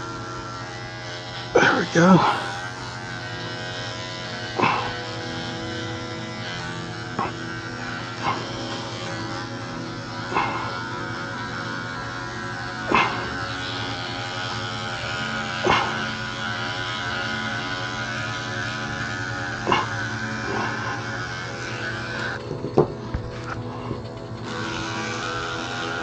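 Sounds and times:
electric clippers buzzing: 0.0 - 26.0
dog barking: 10.3 - 10.7, 12.9 - 13.4, 15.6 - 16.1, 19.7 - 20.8.

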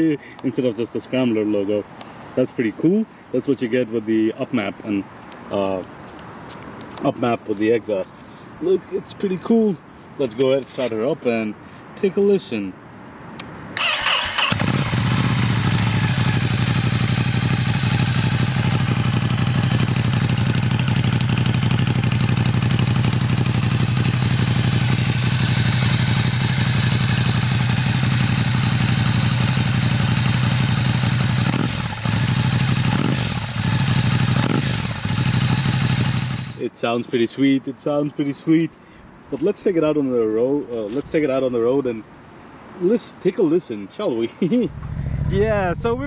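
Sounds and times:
motorcycle starter cranking: 13.8 - 15.0
motorcycle engine idling: 14.6 - 36.6, 44.7 - 46.0.

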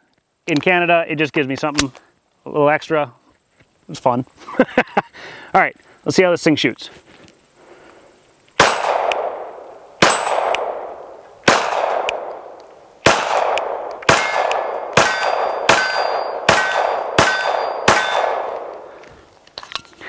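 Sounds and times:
pistol shots with echo: 8.6 - 18.9.

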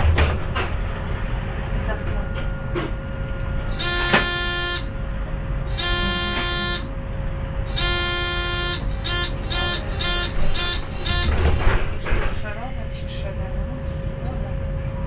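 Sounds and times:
tram rumble: 0.0 - 15.0
electronic warning beeps: 3.7 - 5.0, 5.7 - 6.9, 7.7 - 11.8.

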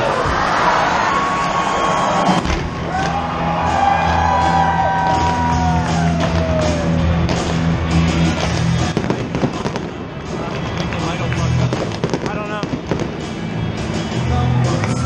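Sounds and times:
fireworks popping and banging: 5.0 - 14.0.

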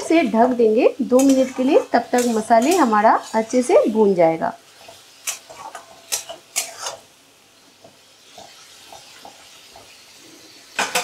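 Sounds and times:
food sizzling faintly in pan: 0.0 - 11.0
utensil clattering against pan: 1.2 - 3.0.

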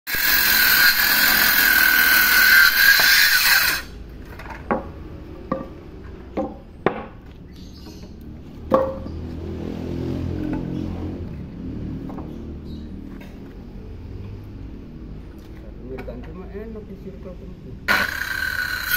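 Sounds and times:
circular saw cutting wood: 0.1 - 4.0, 17.9 - 18.9.

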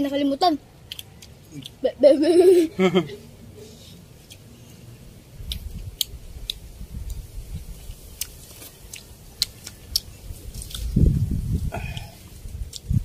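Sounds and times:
chewing and mouth smacking: 0.8 - 1.8, 5.4 - 11.2, 11.8 - 13.0.

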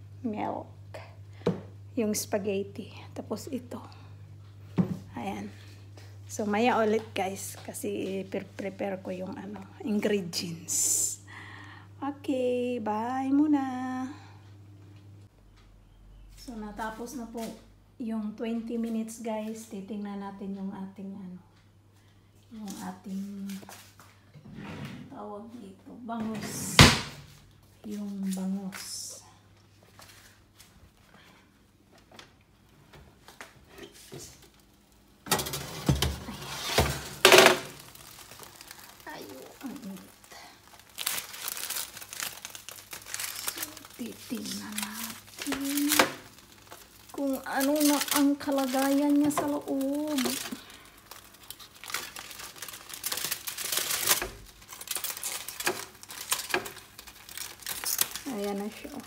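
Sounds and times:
aluminium foil crinkling: 34.0 - 59.0
metal tray scraping and clanking: 35.3 - 37.1.

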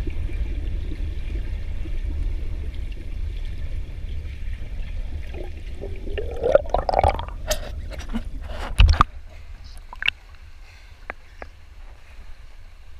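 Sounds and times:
pool water gurgling and splashing: 0.0 - 10.4
underwater rumble: 0.0 - 10.6
water drips: 4.6 - 7.7, 9.8 - 10.4.

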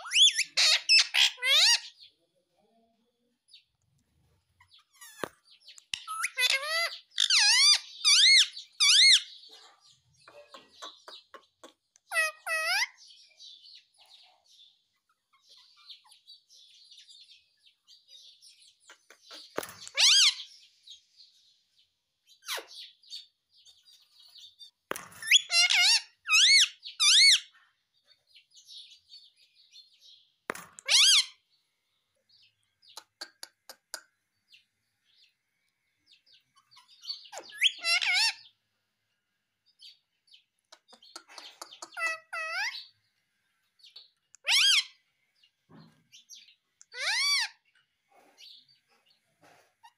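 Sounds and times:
parakeet high-pitched calls: 0.0 - 2.0, 6.0 - 9.5, 12.1 - 13.0, 19.8 - 20.5, 25.2 - 27.6, 30.8 - 31.4, 36.7 - 38.5, 41.9 - 42.9, 44.4 - 45.0, 46.9 - 47.6
parakeet chattering softly: 5.8 - 12.9, 32.9 - 34.1, 40.6 - 42.9.

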